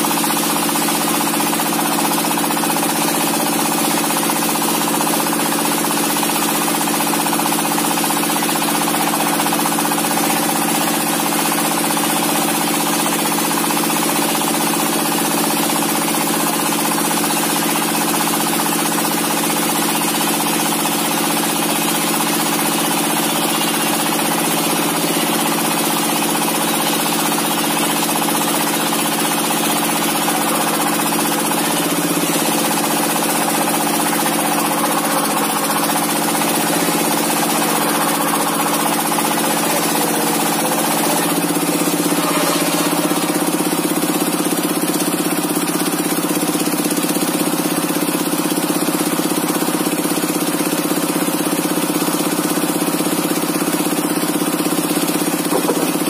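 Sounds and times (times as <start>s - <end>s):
diesel engine driving circular saw: 0.0s - 56.0s.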